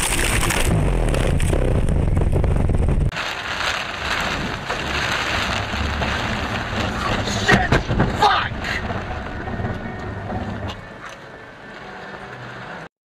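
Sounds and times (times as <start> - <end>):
low rumble: 0.0 - 11.0
heavy rain on car windshield: 3.1 - 10.6.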